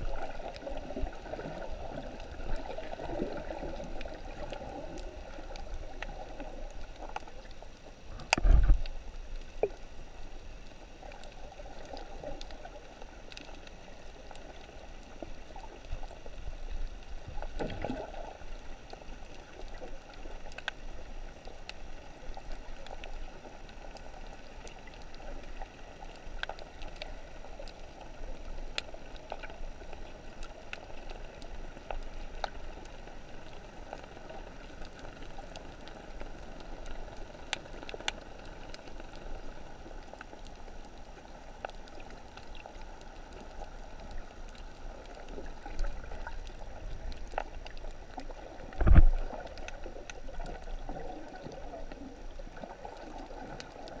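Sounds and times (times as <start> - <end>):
muffled underwater hiss: 0.0 - 54.0
sharp underwater clicks: 8.2 - 9.8, 41.6 - 52.0.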